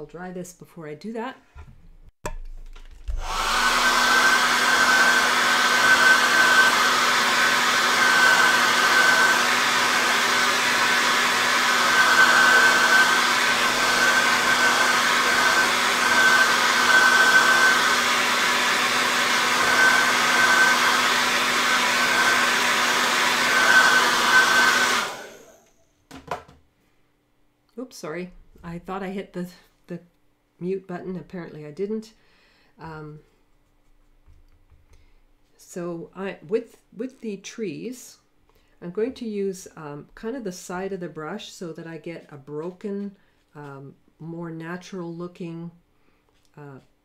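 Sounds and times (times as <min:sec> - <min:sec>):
hair dryer running: 0:03.1 - 0:25.7.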